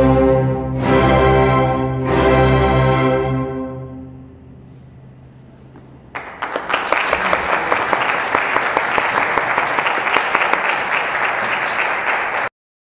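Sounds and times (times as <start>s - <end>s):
audience applauding: 6.1s - 12.5s.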